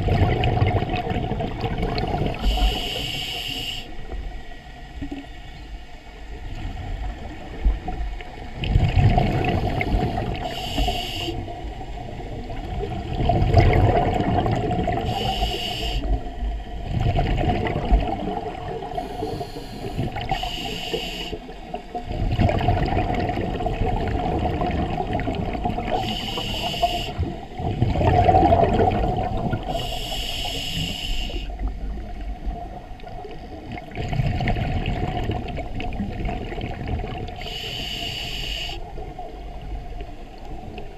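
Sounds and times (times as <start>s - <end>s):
diver breathing through regulator: 2.3s - 4.0s, 9.4s - 11.5s, 15.0s - 16.2s, 18.9s - 21.5s, 25.9s - 27.4s, 29.6s - 31.6s, 37.4s - 38.8s.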